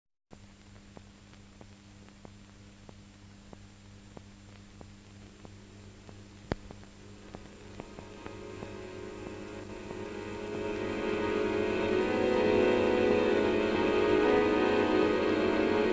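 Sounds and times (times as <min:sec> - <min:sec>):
film soundtrack hum and hiss: 0:00.3 - 0:15.9
faint regular clicks: 0:00.5 - 0:09.4
music: 0:05.0 - 0:15.9.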